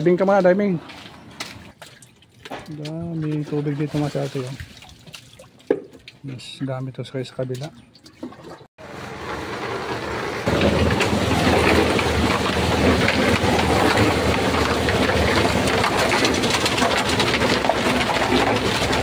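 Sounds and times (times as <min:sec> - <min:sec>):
small engine rattling: 0:08.9 - 0:19.0.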